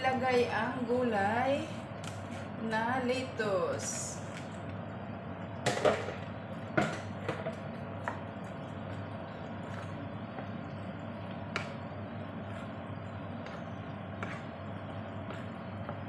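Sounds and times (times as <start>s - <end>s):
spatula stirring in frying pan: 7.0s - 16.0s.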